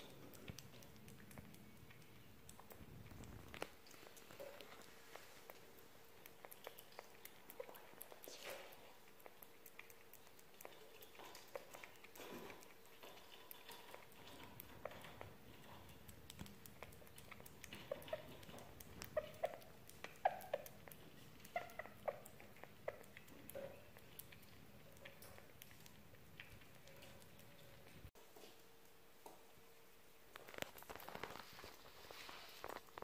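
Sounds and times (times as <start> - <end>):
small animal chewing clicks: 0.0 - 29.4, 30.3 - 33.0.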